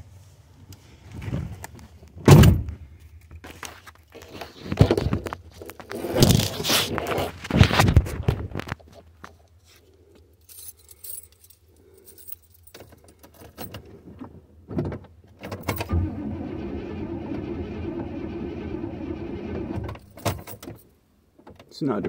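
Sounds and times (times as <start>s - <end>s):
starter cranking engine: 15.8s - 19.9s.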